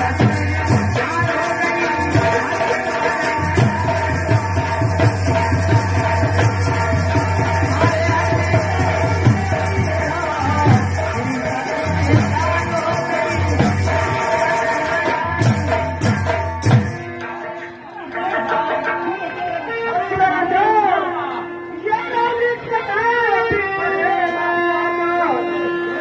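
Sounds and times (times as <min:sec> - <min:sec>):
hand drums beating: 0:00.0 - 0:17.4.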